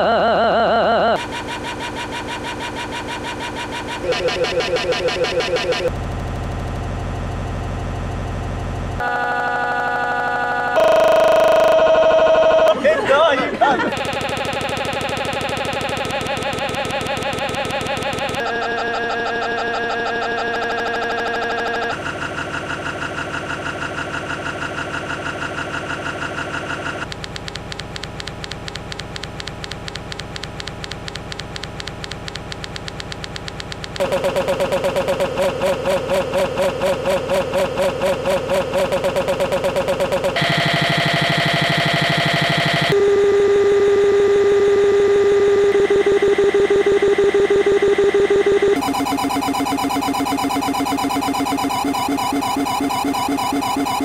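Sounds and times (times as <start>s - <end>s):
pulsing electronic drone: 0.0s - 6.0s, 34.0s - 43.2s
buzzing synthesizer drones: 0.0s - 12.7s, 27.8s - 54.0s.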